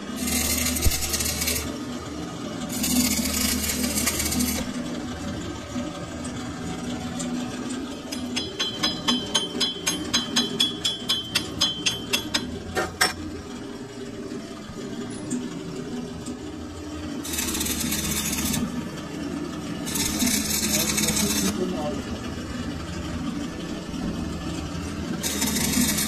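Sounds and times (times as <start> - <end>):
arc welding crackle: 0.2 - 1.8, 2.7 - 4.7, 17.3 - 18.7, 19.9 - 21.6, 25.2 - 26.0.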